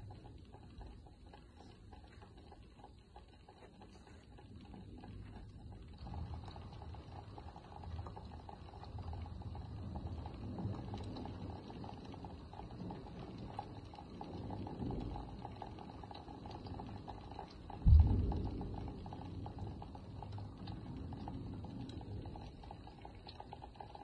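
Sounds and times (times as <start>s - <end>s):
steady rain patter: 0.0s - 24.0s
distant thunder rumble: 5.5s - 23.4s.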